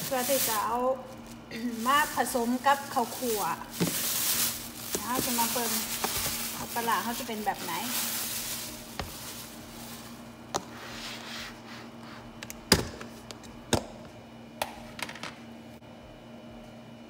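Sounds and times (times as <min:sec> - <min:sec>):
plastic crinkling: 0:00.0 - 0:10.4.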